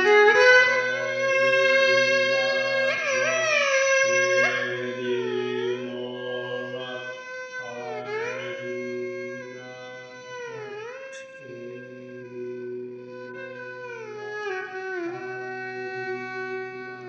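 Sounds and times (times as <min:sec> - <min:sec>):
steady low drone: 0:04.2 - 0:10.1, 0:11.1 - 0:13.8.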